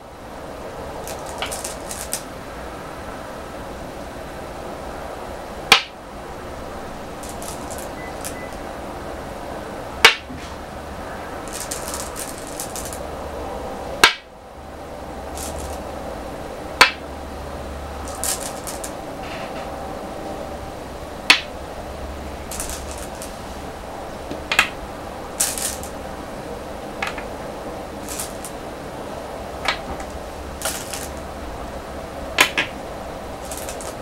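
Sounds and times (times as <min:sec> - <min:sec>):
steady low hum: 0:00.0 - 0:34.0
stones clattering in bowl: 0:01.1 - 0:02.2, 0:07.2 - 0:08.6, 0:11.5 - 0:13.0, 0:15.4 - 0:15.8, 0:18.0 - 0:19.0, 0:22.5 - 0:23.4, 0:25.4 - 0:26.0, 0:28.0 - 0:28.5, 0:29.7 - 0:31.2, 0:33.4 - 0:34.0
stones clicking onto wooden board: 0:01.1 - 0:02.2, 0:07.2 - 0:08.6, 0:11.5 - 0:13.0, 0:14.0 - 0:14.2, 0:15.4 - 0:15.8, 0:16.8 - 0:17.0, 0:18.1 - 0:19.0, 0:22.5 - 0:23.4, 0:24.3 - 0:24.8, 0:25.4 - 0:26.0, 0:27.0 - 0:27.3, 0:28.0 - 0:28.5, 0:29.6 - 0:31.2, 0:32.4 - 0:32.7, 0:33.4 - 0:34.0.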